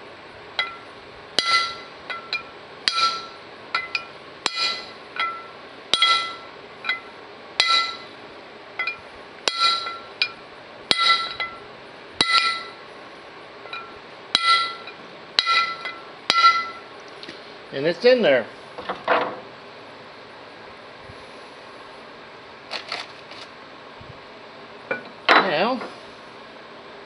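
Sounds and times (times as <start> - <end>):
hammer striking metal punch: 1.4 - 8.1, 8.8 - 11.6, 12.2 - 12.8, 13.7 - 16.9.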